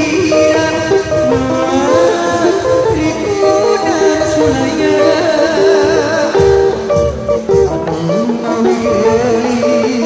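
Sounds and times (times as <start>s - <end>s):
loud parade music: 0.0s - 10.0s
low drum beats: 0.0s - 10.0s
wavering melody line: 0.0s - 10.0s.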